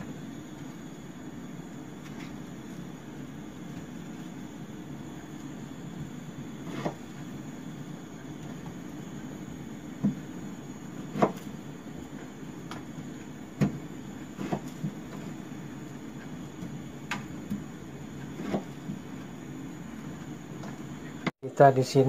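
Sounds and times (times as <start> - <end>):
steady low hum: 0.0 - 22.0
knife cutting sweet potato: 14.4 - 15.3.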